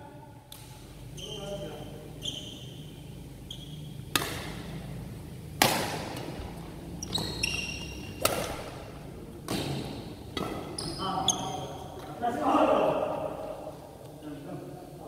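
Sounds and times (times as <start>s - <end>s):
shoes squeaking on court floor: 0.9s - 5.0s, 6.1s - 12.2s
racket striking shuttlecock: 4.0s - 6.6s, 7.2s - 10.8s.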